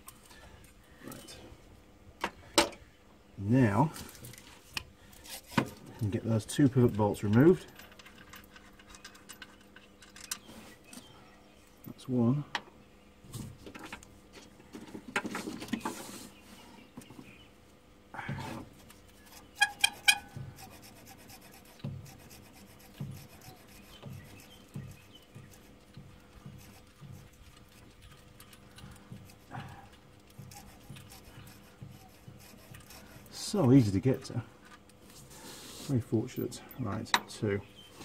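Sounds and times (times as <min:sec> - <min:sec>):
tool rasping scrape: 0:18.4 - 0:34.2.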